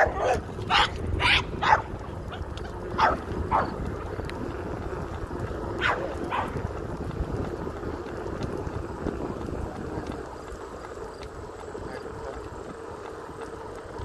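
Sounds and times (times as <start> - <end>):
dog barking: 0.0 - 1.9, 3.0 - 3.8, 5.8 - 6.6
wind noise on microphone: 0.0 - 12.7.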